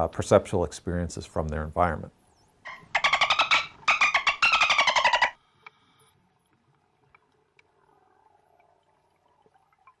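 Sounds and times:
faint clicks: 0:05.6 - 0:07.9.

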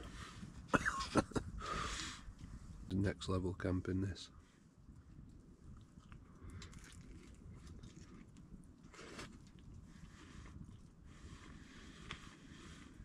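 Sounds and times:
chewing pizza: 0:05.0 - 0:13.0.

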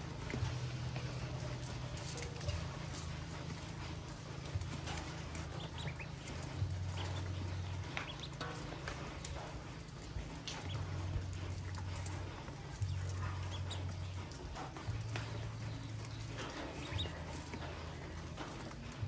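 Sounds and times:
ducklings peeping: 0:04.5 - 0:19.0.

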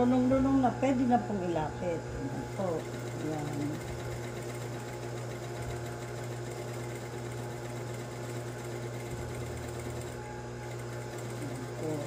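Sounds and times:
motor hum: 0:00.0 - 0:12.0
sewing machine stitching: 0:02.5 - 0:12.0.

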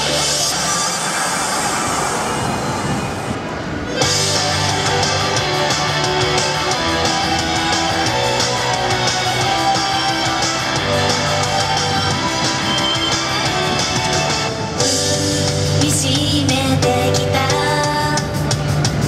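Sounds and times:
pop-rock song over loudspeakers: 0:04.0 - 0:19.0.

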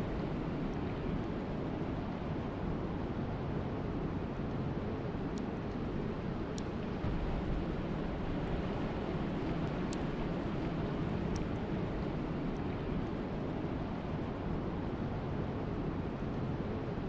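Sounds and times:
faint ticks: 0:05.3 - 0:05.8, 0:06.5 - 0:06.8, 0:09.4 - 0:10.2, 0:11.2 - 0:11.6.

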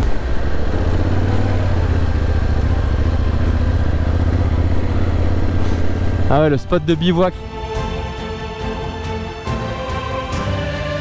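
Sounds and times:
motorcycle engine running: 0:00.0 - 0:07.1.

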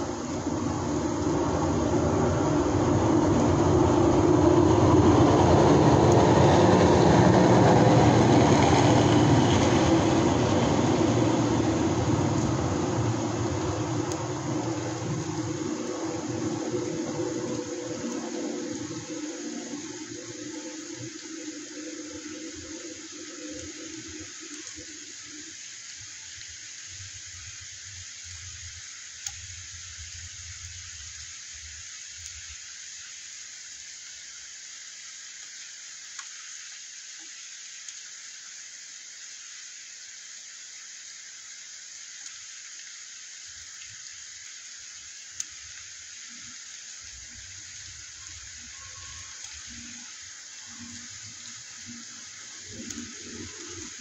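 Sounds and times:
low rumble: 0:00.0 - 0:23.0
steady rain: 0:00.0 - 0:54.0.

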